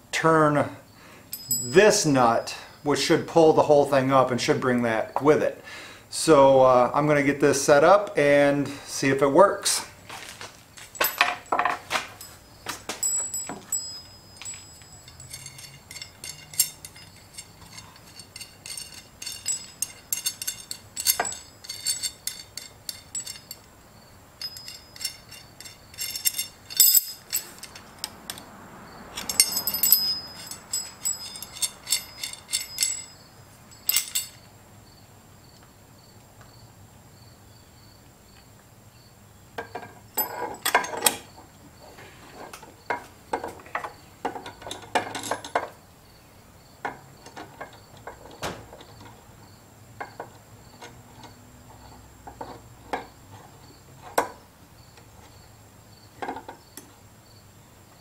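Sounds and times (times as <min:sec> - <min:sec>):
metal nuts clinking: 0:01.3 - 0:02.2, 0:10.8 - 0:28.5, 0:29.1 - 0:34.5, 0:39.6 - 0:41.4, 0:42.4 - 0:45.8, 0:46.8 - 0:49.3, 0:50.0 - 0:54.4.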